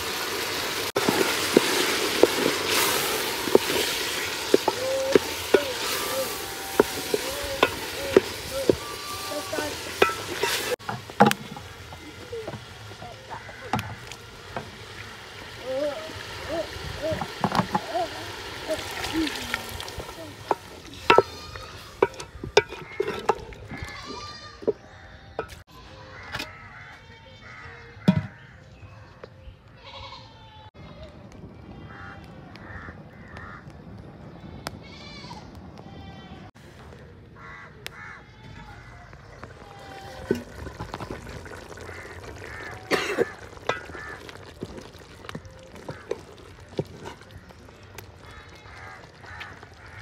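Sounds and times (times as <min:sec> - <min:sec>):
food sizzling in a pot: 0:00.0 - 0:24.8, 0:39.4 - 0:50.0
spoon scraping and knocking pot: 0:04.5 - 0:08.9, 0:10.0 - 0:11.6, 0:20.5 - 0:23.9.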